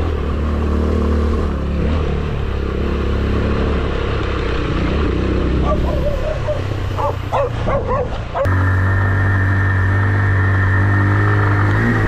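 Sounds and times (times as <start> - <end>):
motorcycle engine running: 0.0 - 12.0
dog barking: 5.6 - 8.5.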